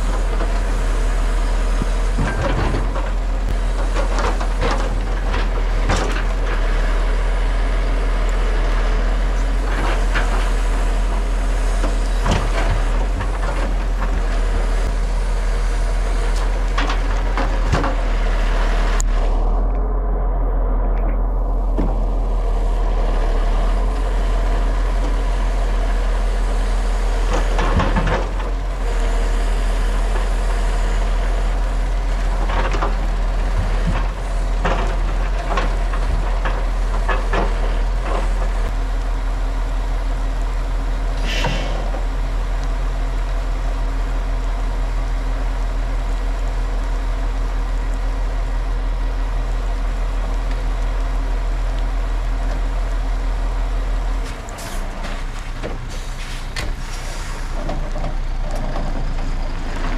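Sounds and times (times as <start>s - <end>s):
truck diesel engine running: 0.0s - 59.9s.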